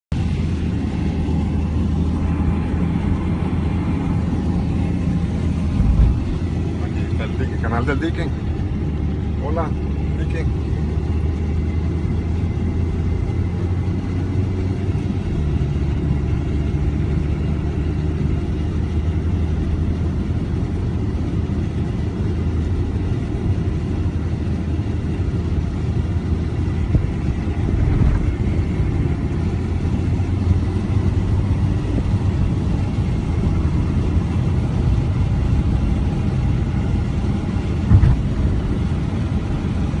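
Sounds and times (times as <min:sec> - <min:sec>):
car road and engine rumble: 0:00.0 - 0:40.0
short thump: 0:37.9 - 0:38.6.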